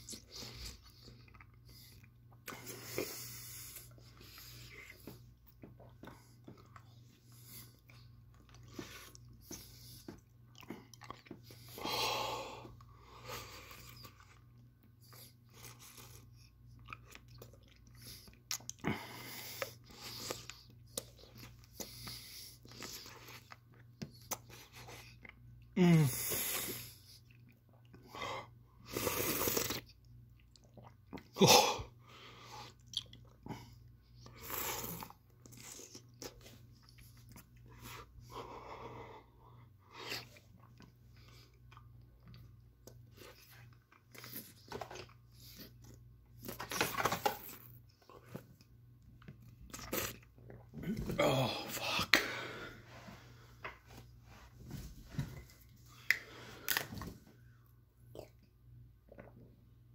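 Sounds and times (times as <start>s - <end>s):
man groaning: 51.0s - 52.2s.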